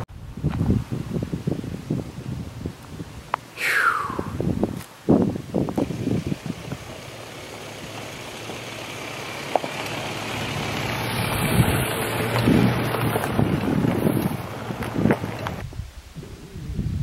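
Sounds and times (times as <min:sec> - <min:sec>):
tyres on gravel: 0:04.7 - 0:15.6
pickup engine driving past: 0:05.8 - 0:15.6.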